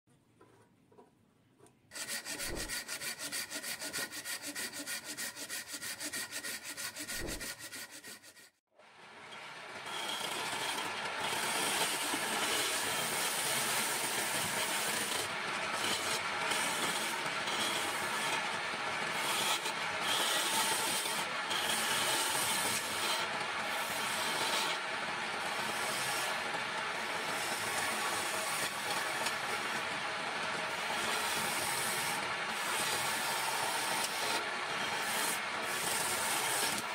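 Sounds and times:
lathe tool scraping wood: 1.9 - 8.6, 9.2 - 36.9
lathe hum: 9.1 - 36.9.

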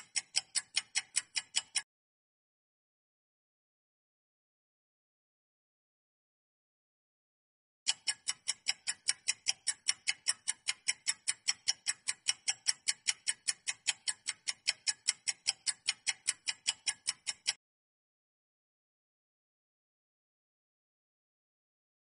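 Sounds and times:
clock ticking: 0.0 - 1.9, 7.9 - 17.6.

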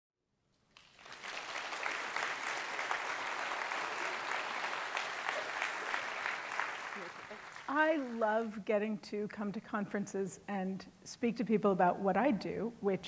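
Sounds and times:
audience applauding: 0.8 - 8.2.

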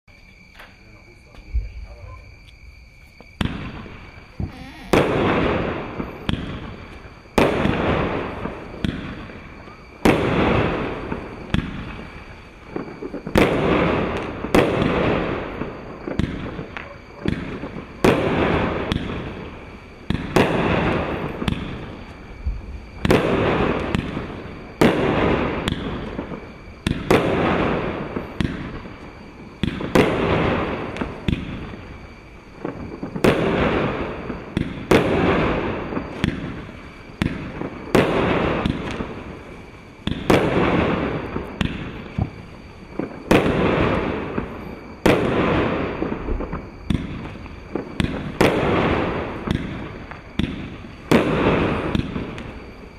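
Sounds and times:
fireworks reports: 0.5 - 2.4, 3.4 - 19.2
fireworks hissing: 3.0 - 52.9.

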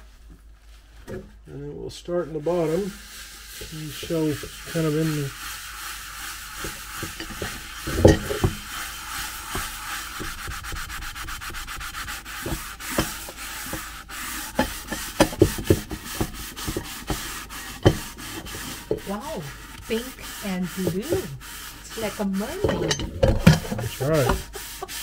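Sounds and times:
sponge scrubbing metal pot: 2.1 - 25.0
pot knocks: 6.6 - 8.7.

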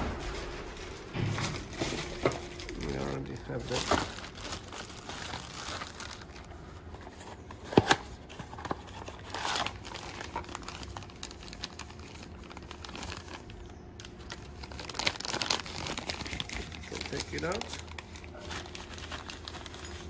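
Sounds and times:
plastic bags crinkling: 0.0 - 20.0.

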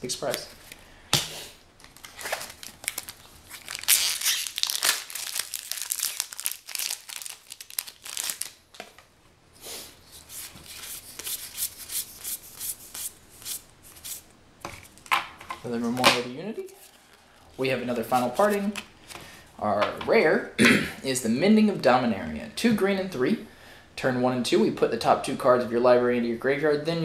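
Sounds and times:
plastic wrapper crinkling and tearing: 1.8 - 8.8.

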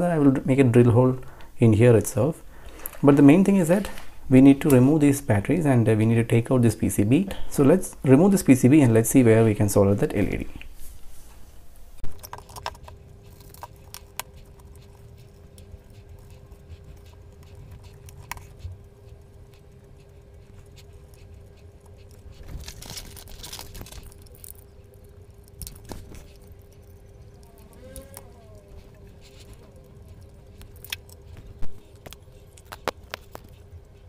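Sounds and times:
faint steady hum: 0.0 - 34.0
plastic parts clicking and rattling: 12.1 - 14.3, 22.3 - 28.2.

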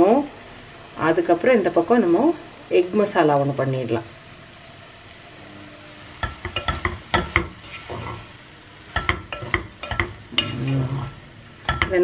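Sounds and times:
low steady sizzle: 0.0 - 12.0
wooden spatula scraping a pot: 6.2 - 8.3, 9.0 - 12.0.

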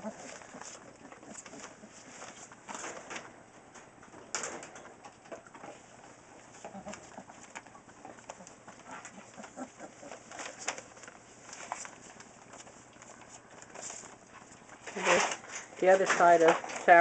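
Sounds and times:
puppies grunting and whimpering: 0.0 - 2.7, 6.3 - 14.9
paws clicking on paper: 0.0 - 3.3, 5.1 - 17.0.

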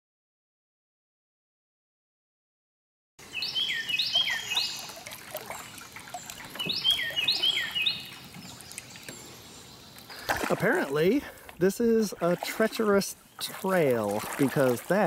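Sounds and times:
songbird singing: 3.2 - 15.0
water dripping from paddles: 3.5 - 15.0.

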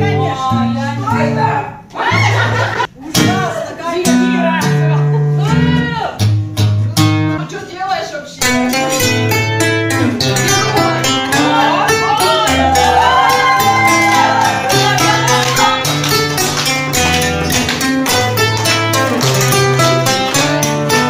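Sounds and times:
acoustic guitar strummed fast: 8.4 - 21.0.

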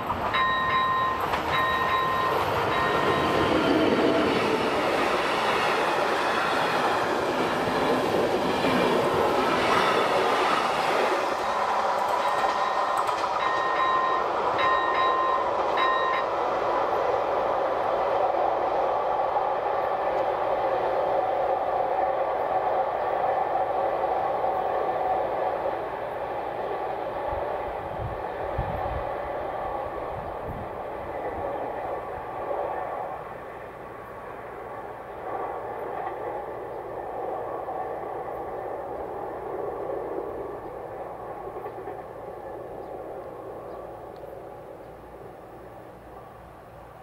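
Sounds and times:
crossing warning bell ringing: 0.0 - 4.6, 7.5 - 8.4, 9.9 - 16.6
train rumbling on rails: 0.0 - 47.0.

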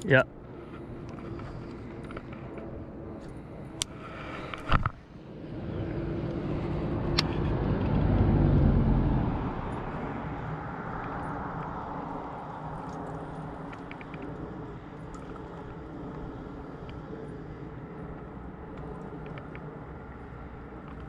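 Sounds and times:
low rumble: 5.0 - 12.7.

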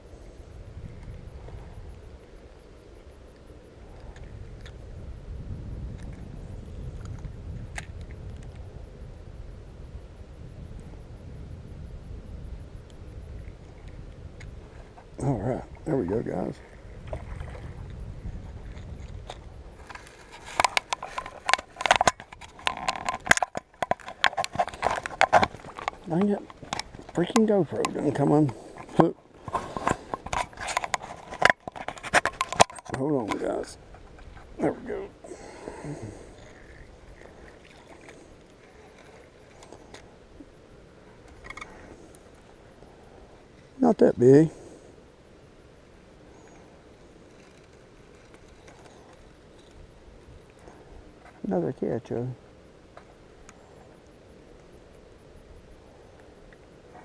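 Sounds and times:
wind rumble on microphone: 0.0 - 44.7
camera handling noise: 19.2 - 27.2.

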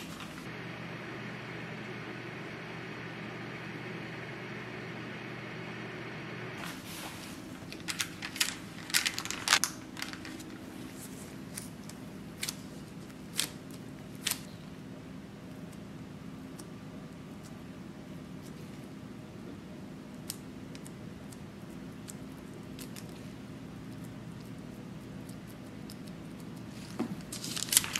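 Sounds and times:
baking paper crackling: 0.0 - 0.5, 6.6 - 14.5, 26.6 - 27.9
microwave oven humming: 0.0 - 27.9.

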